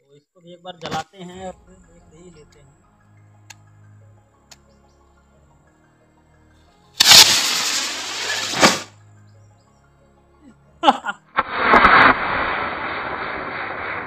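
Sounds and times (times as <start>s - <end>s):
firework rocket hissing: 7.0s - 8.9s, 11.4s - 14.0s
sharp pop: 7.0s - 8.9s, 11.4s - 14.0s.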